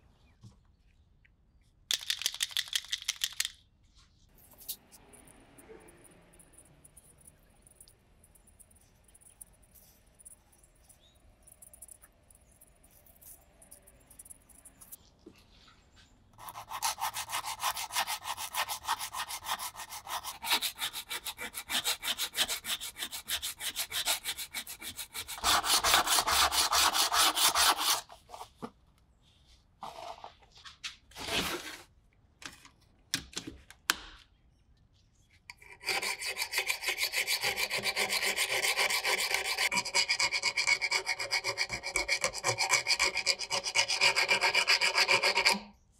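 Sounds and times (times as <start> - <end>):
file rasping on knife blade: 16.4 - 28.1, 35.6 - 45.7.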